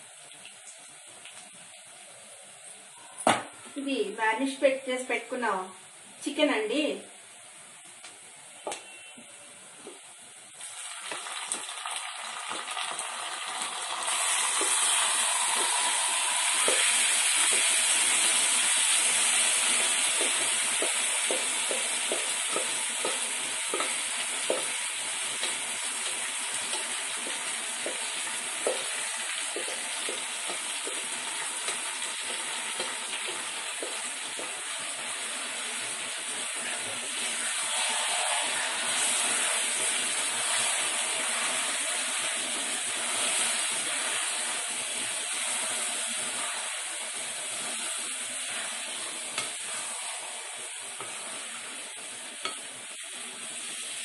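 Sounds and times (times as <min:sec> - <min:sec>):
chicken sizzling in hot oil: 0:10.6 - 0:54.0.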